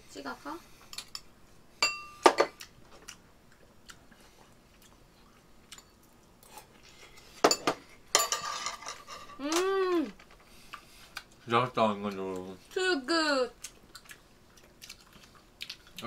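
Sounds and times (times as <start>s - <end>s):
chewing: 2.6s - 6.9s, 13.6s - 16.0s
person humming: 9.4s - 10.2s.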